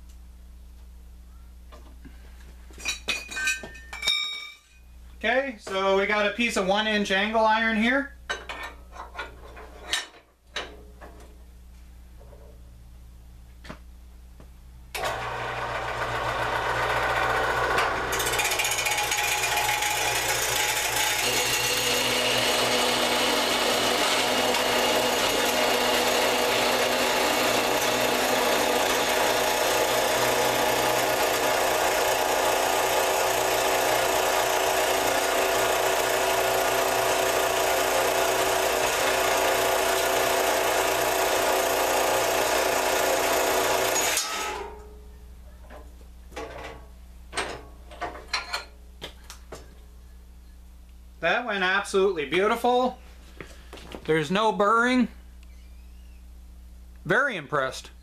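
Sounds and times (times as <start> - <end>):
band saw cutting steel: 15.0 - 44.7.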